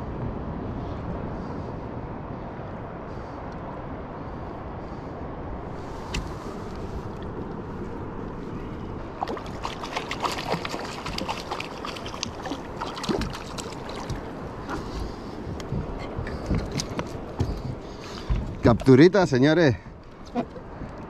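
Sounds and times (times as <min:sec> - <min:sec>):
water washing against kayak hull: 0:09.0 - 0:19.2
fish splashing at surface: 0:09.2 - 0:14.3.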